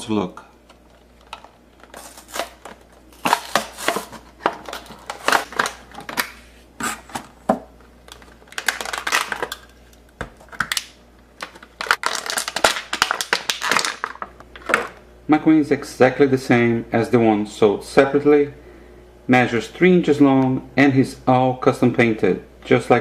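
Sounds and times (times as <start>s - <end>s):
plastic packaging crackling: 0.6s - 7.3s, 8.0s - 15.0s.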